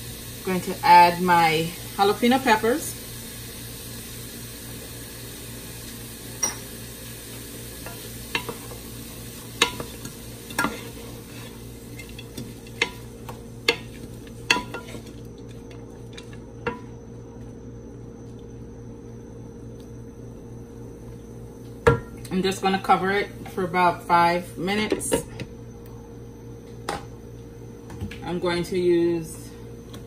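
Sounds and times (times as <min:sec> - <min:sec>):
vegetables sizzling in a skillet: 0:00.0 - 0:16.9
spatula knocking and scraping pan: 0:09.6 - 0:15.1.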